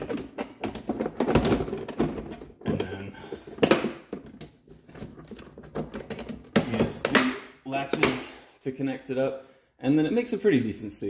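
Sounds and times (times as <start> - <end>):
hollow plastic knocks and scrapes: 0.0 - 8.3.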